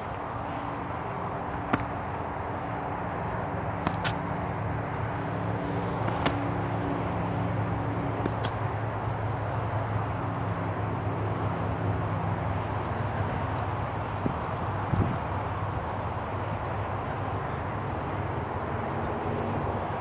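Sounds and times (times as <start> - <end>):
small birds chirping: 0.5 - 2.1, 6.5 - 6.9, 8.2 - 8.6, 10.2 - 10.9, 11.7 - 19.2.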